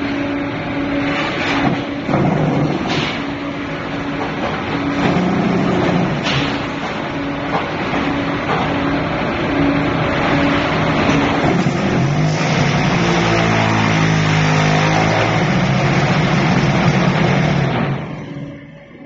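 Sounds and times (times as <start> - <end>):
humming motor tones: 0.0 - 19.0
machine clatter and rumble: 0.0 - 19.0.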